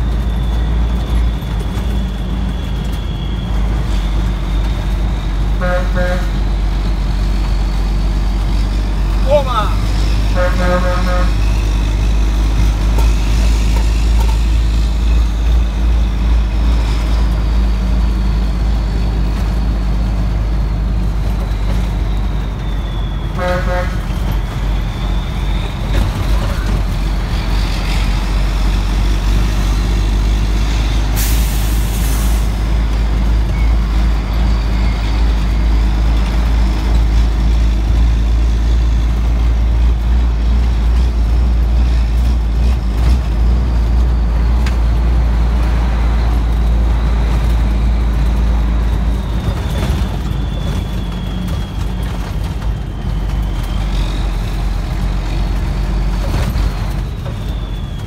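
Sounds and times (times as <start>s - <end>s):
diesel truck engine running: 0.0s - 58.0s
horn toot: 5.5s - 6.5s, 10.1s - 11.6s, 23.3s - 24.2s.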